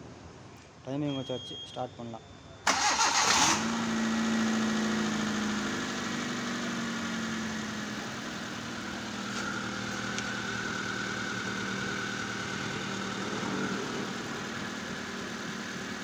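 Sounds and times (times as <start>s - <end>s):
faint high whine: 0.5s - 2.7s
car engine idling: 2.7s - 16.0s.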